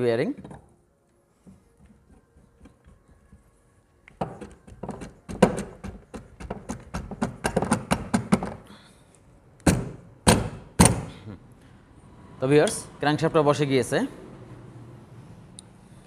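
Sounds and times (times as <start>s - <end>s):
sharp knocks on metal: 4.2s - 8.6s, 9.7s - 11.1s.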